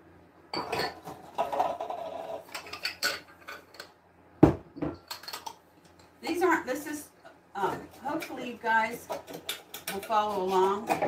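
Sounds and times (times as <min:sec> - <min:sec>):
dishes clinking in cupboard: 0:00.5 - 0:01.7, 0:02.5 - 0:03.8.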